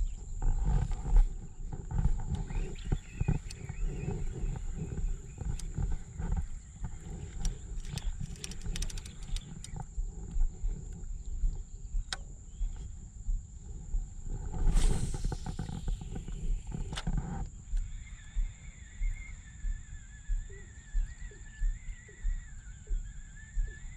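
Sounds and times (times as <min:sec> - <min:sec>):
wind rumbling on microphone: 0:00.0 - 0:23.9
fishing reel clicks and knocks: 0:02.9 - 0:09.9
high-pitched whine: 0:13.5 - 0:23.9.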